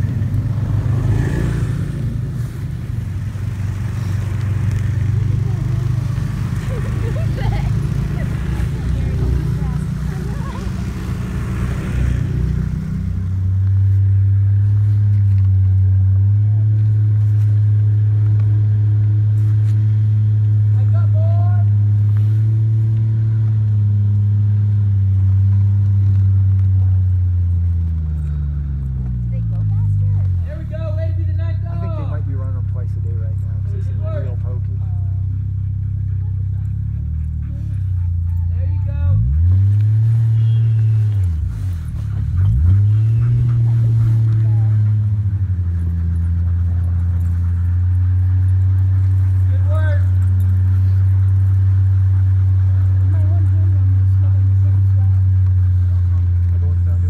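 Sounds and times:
dogs whining: 41.0 - 49.5.

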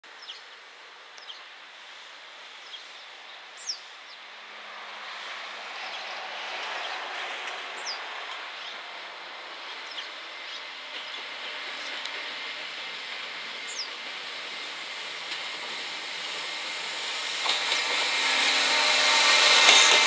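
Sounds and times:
freight train running noise: 4.2 - 20.0.

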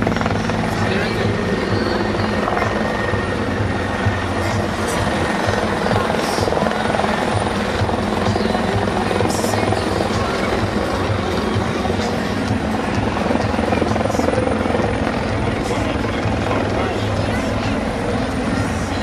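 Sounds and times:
helicopter flying overhead: 0.0 - 19.0.

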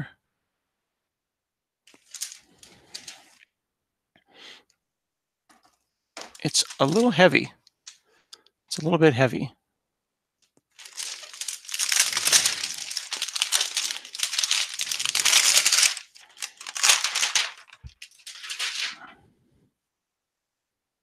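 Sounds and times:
plastic wrap crackling: 1.9 - 3.4, 6.2 - 8.0, 10.7 - 19.1.

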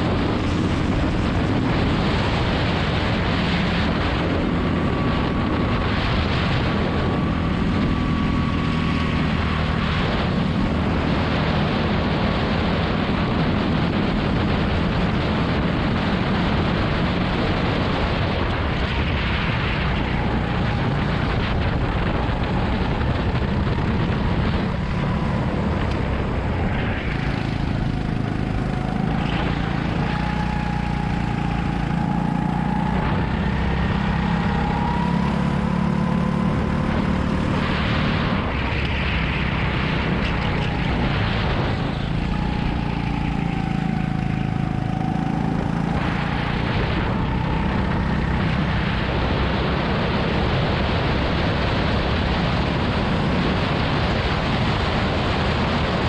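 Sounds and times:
steady rush of noise: 0.0 - 56.0
go-kart engine revving: 22.2 - 55.9.

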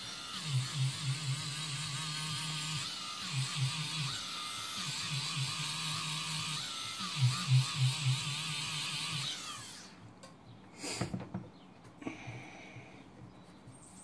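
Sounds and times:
rotary tool motor whine: 0.0 - 10.0.

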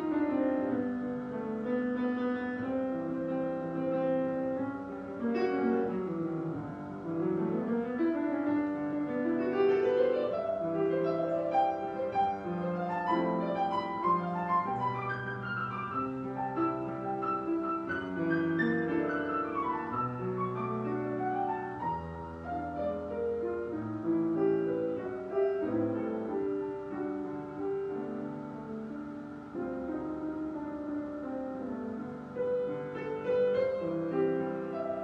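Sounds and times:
solo jazz piano: 0.0 - 35.0.

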